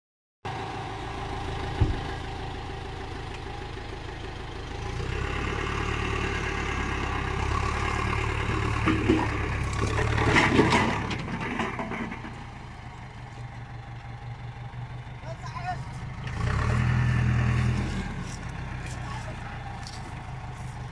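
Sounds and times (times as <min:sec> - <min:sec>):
tractor diesel engine running: 0:00.5 - 0:20.9
sharp knocks and clatters: 0:08.8 - 0:12.5.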